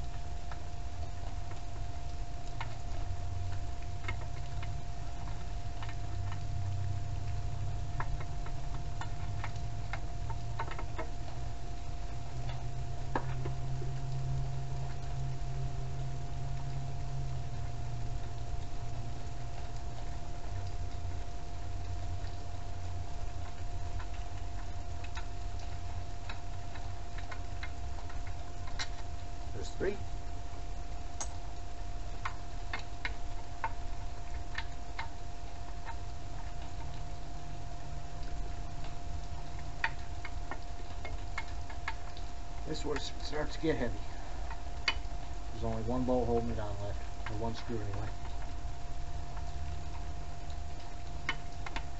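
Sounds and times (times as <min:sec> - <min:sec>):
faint steady whine: 0:00.0 - 0:51.9
light clicks and ticks: 0:00.0 - 0:51.9
steady low hum: 0:00.0 - 0:51.9
steady low rumble: 0:00.0 - 0:51.9
light clicks and taps: 0:08.0 - 0:11.4, 0:23.4 - 0:30.0, 0:38.2 - 0:48.6.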